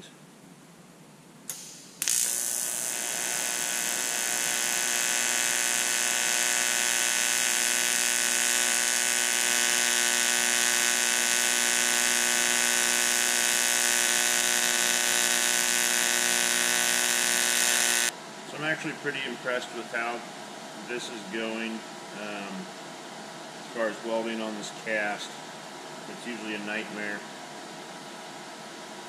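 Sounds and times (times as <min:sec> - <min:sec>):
welding arc buzz: 0:01.5 - 0:18.1
welding arc crackle: 0:01.5 - 0:18.1.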